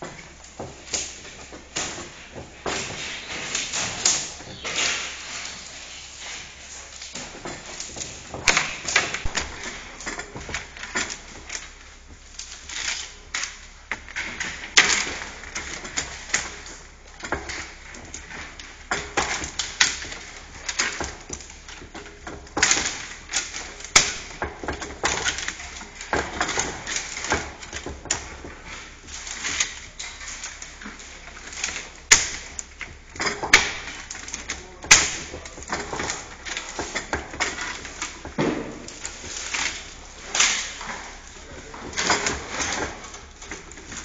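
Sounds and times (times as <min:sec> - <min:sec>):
rods rustling: 0:00.0 - 0:44.0
wood knocking on wood: 0:32.1 - 0:39.4.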